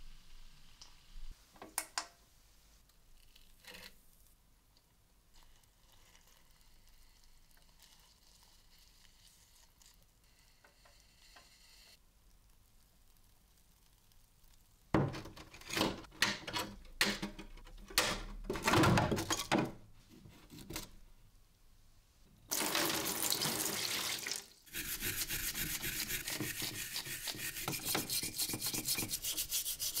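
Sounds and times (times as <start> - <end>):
stiff brush scrubbing steel: 24.7 - 30.0.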